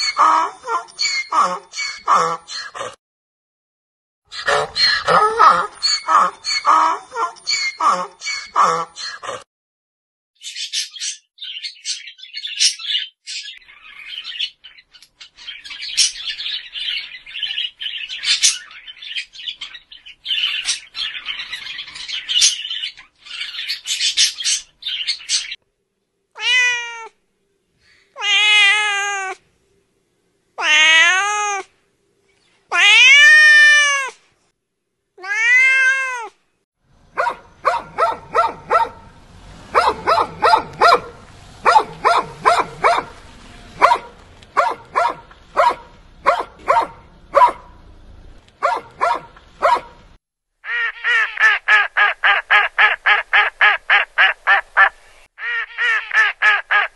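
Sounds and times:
parrot squawking: 0.0s - 2.8s, 4.3s - 9.4s, 10.5s - 25.6s, 28.2s - 29.4s, 37.1s - 39.1s, 39.7s - 43.2s, 50.6s - 56.9s
dog barking: 4.4s - 7.4s, 8.5s - 8.9s, 37.1s - 39.1s, 39.7s - 43.2s, 43.8s - 47.8s, 48.6s - 50.0s
cat meowing: 26.4s - 27.2s, 28.2s - 29.4s, 30.6s - 31.7s, 32.7s - 34.2s, 35.2s - 36.4s.

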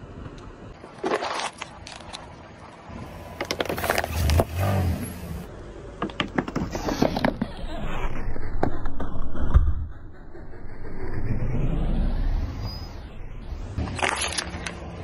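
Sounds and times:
glass bottles crunching under tyre: 0.9s - 2.3s, 13.8s - 14.7s
rolling tyre rumble: 1.6s - 15.0s.

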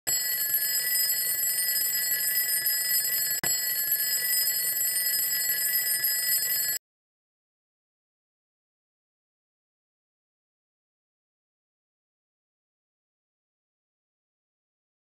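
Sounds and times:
alarm clock bell ringing: 0.1s - 6.8s.

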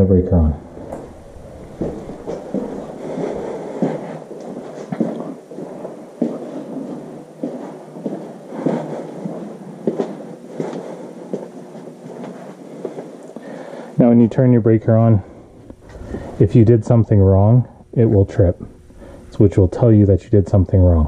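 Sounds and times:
footsteps on hard floor and stairs: 0.7s - 13.1s.

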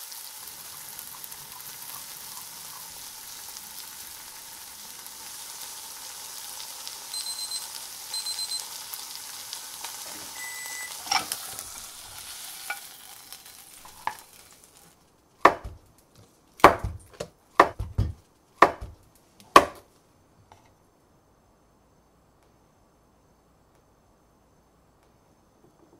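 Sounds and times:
chicken sizzling in a pan: 0.0s - 16.0s
short high beeps: 7.1s - 8.6s, 10.3s - 11.0s
knife knocking on cutting board: 15.5s - 15.8s, 16.6s - 19.0s.

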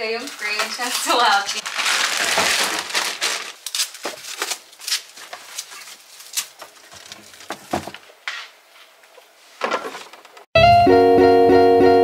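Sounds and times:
plastic food packets crinkling: 0.0s - 7.8s.

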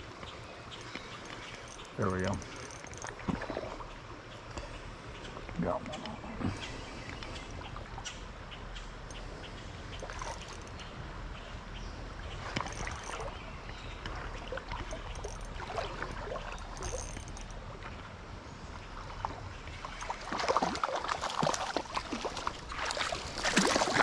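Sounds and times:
stream water running: 0.0s - 24.0s
fish splashing: 2.4s - 4.1s, 19.2s - 24.0s.

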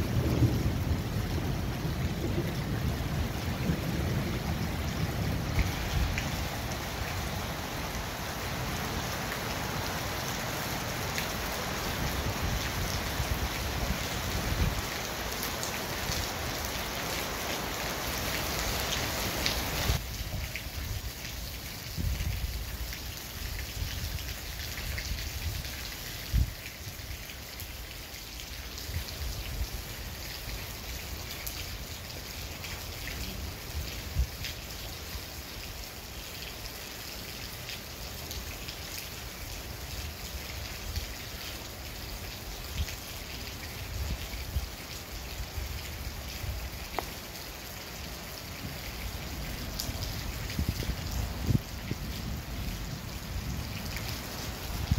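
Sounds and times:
steady rain: 0.0s - 54.9s.

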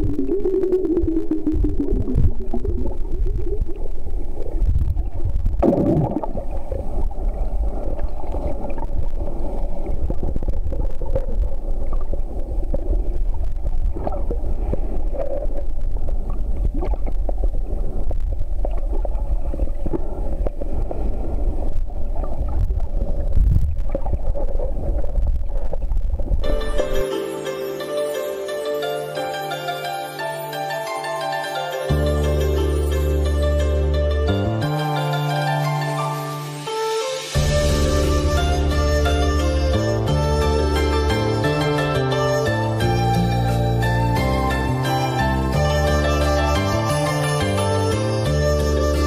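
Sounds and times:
underwater water rumble and gurgling: 0.0s - 26.5s
faint steady hum: 0.0s - 27.0s.

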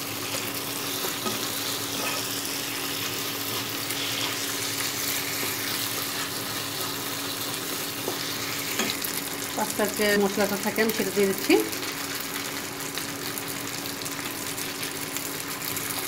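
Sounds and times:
spatula stirring food: 0.0s - 9.2s
food sizzling in frying pan: 0.0s - 16.0s.

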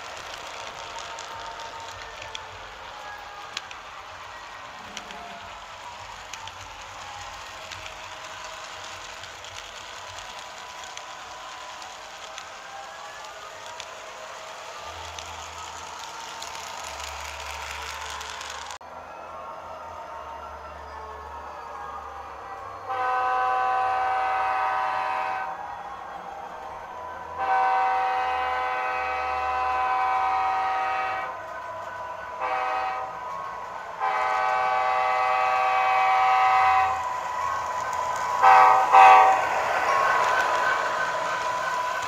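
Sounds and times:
model train air horn: 22.8s - 25.6s, 27.4s - 31.4s, 32.4s - 33.4s, 34.0s - 42.0s.

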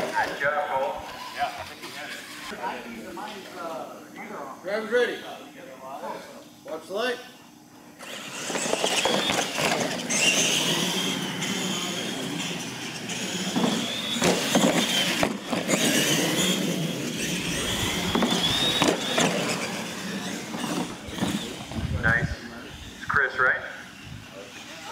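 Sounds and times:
toy truck motors whining: 1.0s - 2.6s, 8.0s - 24.9s.

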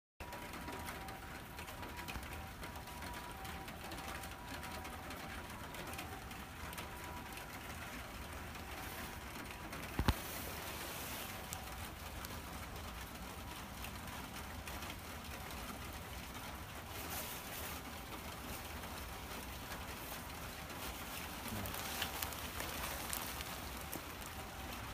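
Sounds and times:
cat chewing food: 7.2s - 24.9s.

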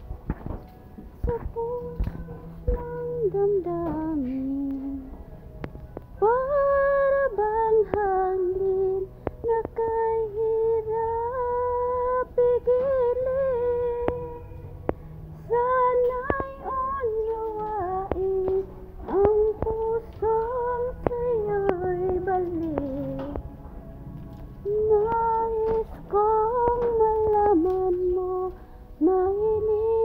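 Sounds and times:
woman singing unaccompanied: 1.1s - 5.2s, 6.2s - 14.8s, 15.4s - 23.4s, 24.6s - 30.0s.

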